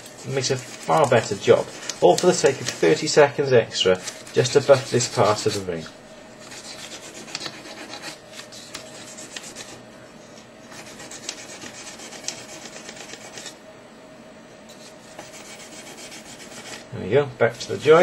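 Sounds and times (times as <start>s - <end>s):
sandpaper rasping on metal ring: 0.2s - 3.0s, 4.2s - 5.7s, 6.5s - 8.2s, 15.2s - 16.8s.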